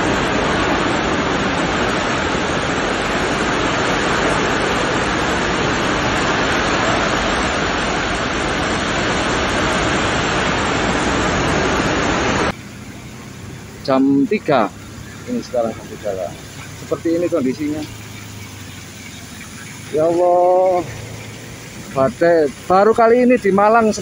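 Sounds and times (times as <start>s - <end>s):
strong wind: 0.0s - 13.9s
torrential rain: 0.0s - 24.0s.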